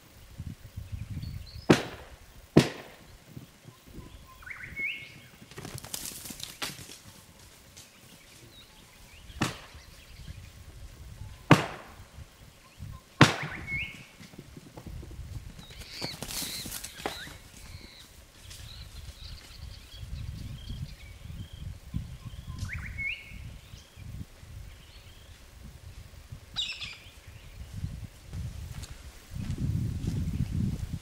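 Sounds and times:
birds chirping: 0:00.0 - 0:28.3
sharp thuds: 0:01.7 - 0:03.1, 0:09.3 - 0:09.9, 0:11.5 - 0:12.1, 0:13.2 - 0:14.9.

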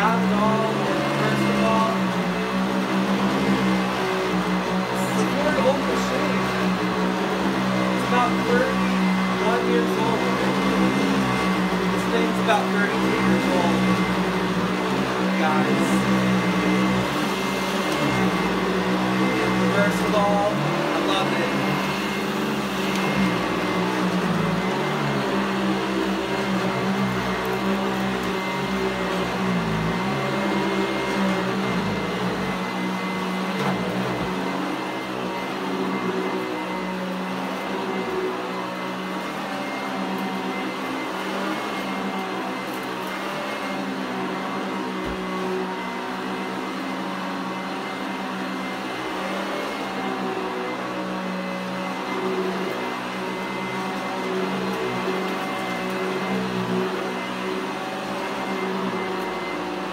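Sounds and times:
upright vacuum cleaner running: 0:00.0 - 0:59.9.

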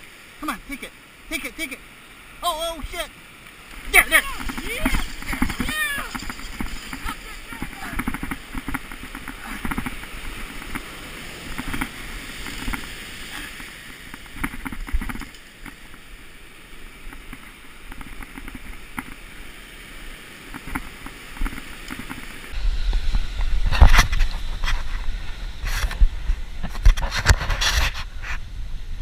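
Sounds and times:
surf breaking on rocks: 0:00.0 - 0:16.2
wind on microphone: 0:03.8 - 0:15.3, 0:20.6 - 0:29.0.

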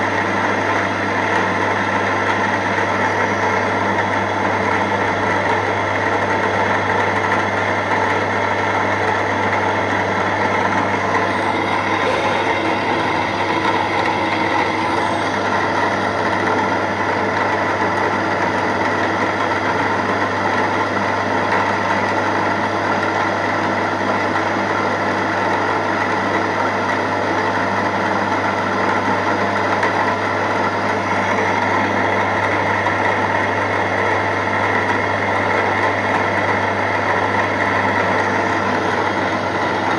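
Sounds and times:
milling machine humming: 0:00.0 - 0:39.9.

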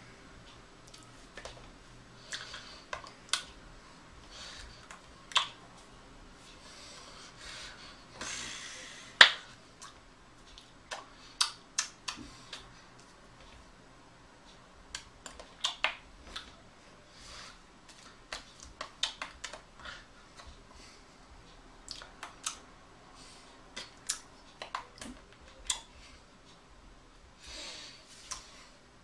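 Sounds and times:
hands slapping: 0:09.2 - 0:09.5.

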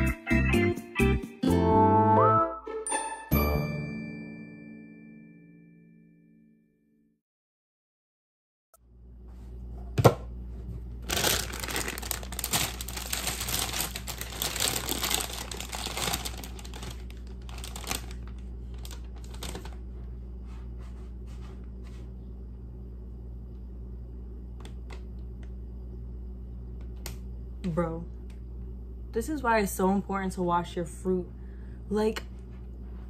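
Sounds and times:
steady low hum: 0:08.8 - 0:33.0
plastic bag crinkling: 0:11.0 - 0:19.9.

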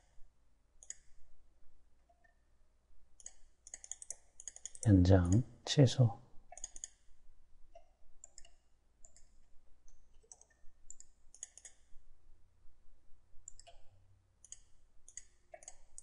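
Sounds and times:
computer mouse clicking: 0:00.8 - 0:01.2, 0:03.2 - 0:05.4, 0:06.5 - 0:07.0, 0:07.7 - 0:11.9, 0:13.4 - 0:16.0.

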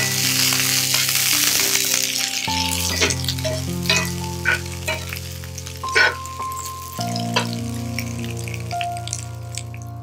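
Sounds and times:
food sizzling in hot oil: 0:00.0 - 0:10.0
soft background music: 0:00.0 - 0:10.0
metal spatula scraping pan: 0:02.8 - 0:05.2, 0:05.9 - 0:06.3.

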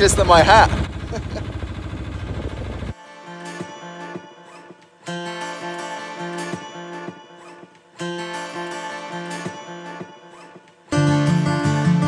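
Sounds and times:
boat engine running: 0:00.0 - 0:02.9
wind rumble: 0:00.0 - 0:02.9
acoustic guitar music: 0:02.9 - 0:12.0.

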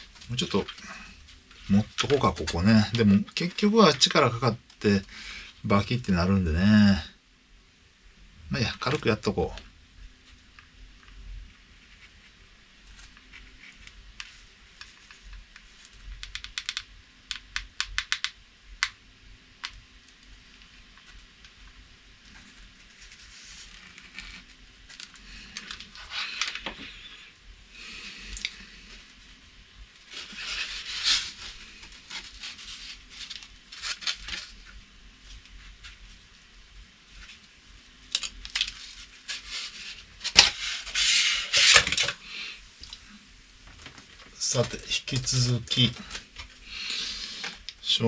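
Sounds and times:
small clicks: 0:13.8 - 0:19.0
foam rubbing and rustling: 0:22.2 - 0:27.0, 0:30.0 - 0:36.3, 0:38.8 - 0:42.1.

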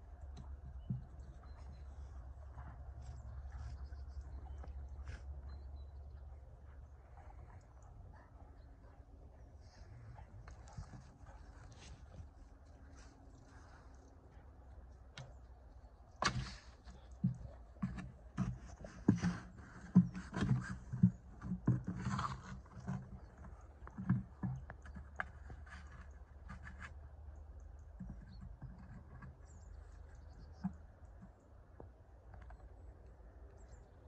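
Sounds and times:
plastic watering can thuds and scrapes: 0:16.2 - 0:26.0.

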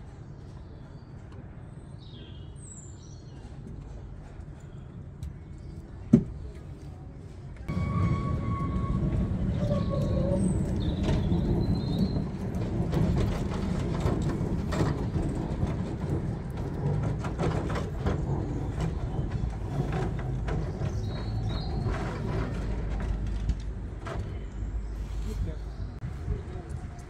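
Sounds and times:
tram rumbling past: 0:07.2 - 0:27.0
wheels clicking on rails: 0:07.7 - 0:24.9.

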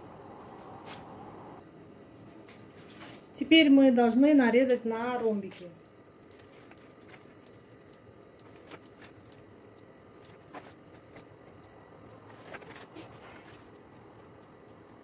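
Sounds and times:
pizza cutter rolling through dough: 0:10.1 - 0:15.0.

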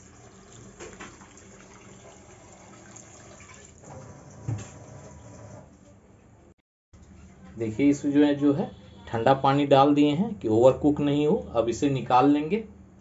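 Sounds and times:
water pouring into steel bowl: 0:00.0 - 0:03.9.

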